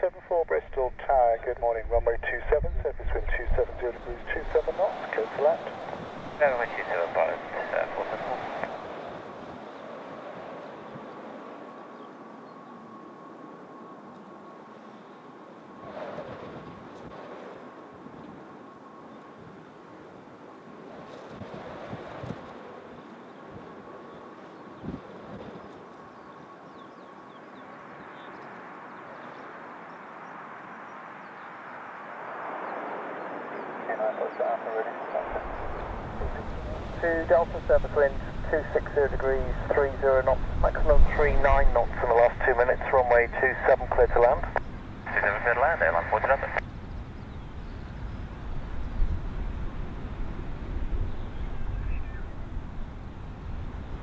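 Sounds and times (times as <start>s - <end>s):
turboprop engines rushing drone: 0.0s - 54.0s
gusty wind buffeting microphone: 0.3s - 12.6s, 15.6s - 27.1s, 35.1s - 54.0s.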